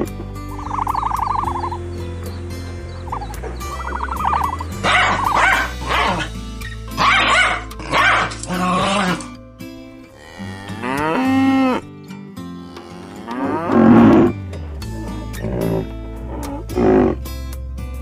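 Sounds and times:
background music with bass line: 0:00.0 - 0:18.0
cow mooing: 0:10.0 - 0:17.3.

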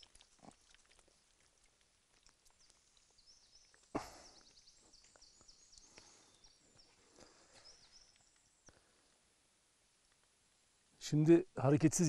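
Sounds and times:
birds chirping: 0:02.4 - 0:09.1.

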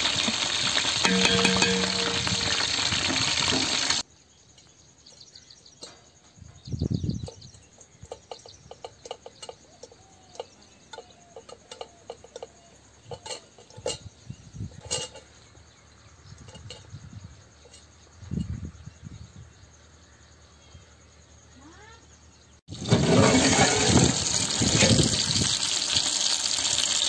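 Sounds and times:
fish sizzling in hot oil: 0:00.0 - 0:04.1, 0:22.7 - 0:27.0
faint chirping: 0:04.0 - 0:22.7.

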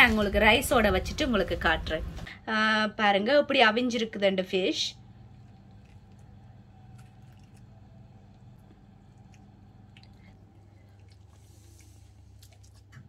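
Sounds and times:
low hum: 0:04.5 - 0:12.8
soft squishing of fish flesh: 0:05.2 - 0:13.0.

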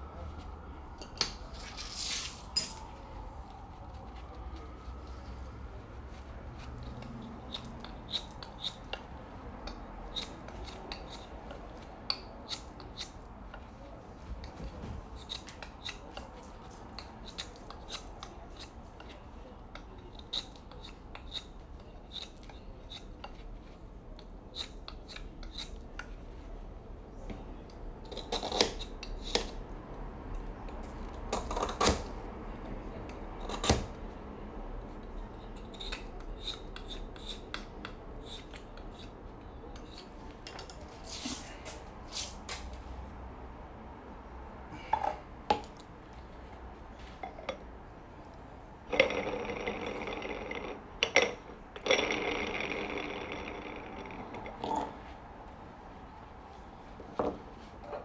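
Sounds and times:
knife scraping ice: 0:06.9 - 0:09.1, 0:20.0 - 0:23.7, 0:24.5 - 0:25.9, 0:28.0 - 0:29.5, 0:35.4 - 0:39.1.

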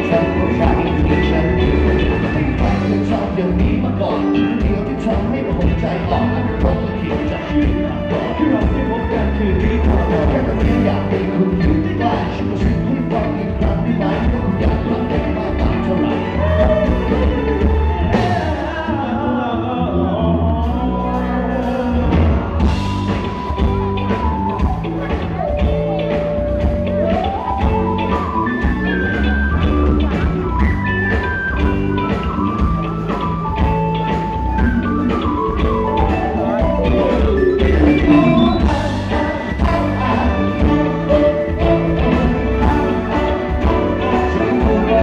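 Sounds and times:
steady drum beat: 0:00.0 - 0:18.6, 0:22.1 - 0:45.0
bass: 0:00.0 - 0:45.0
electric guitar: 0:00.0 - 0:45.0
lead melody of held notes: 0:20.7 - 0:45.0.

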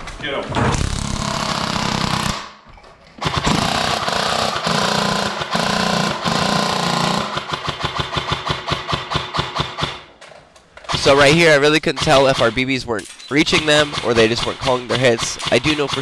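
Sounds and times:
airsoft rifles firing: 0:03.2 - 0:10.2, 0:13.4 - 0:16.0.

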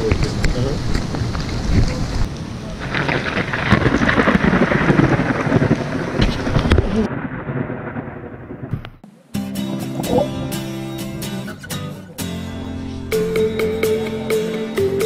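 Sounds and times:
rumbling thunder: 0:00.0 - 0:09.0
heavy rain: 0:00.0 - 0:11.6.

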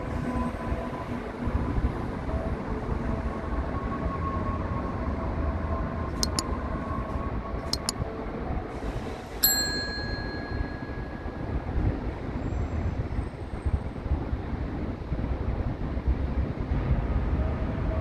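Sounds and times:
bright bell ding: 0:06.2 - 0:06.4, 0:09.4 - 0:11.3
mouse clicks: 0:06.2 - 0:06.4, 0:07.7 - 0:08.0.

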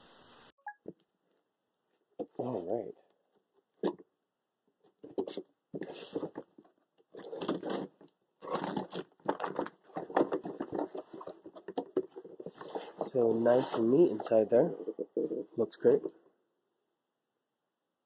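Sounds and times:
packing tape tearing: 0:07.2 - 0:10.5.

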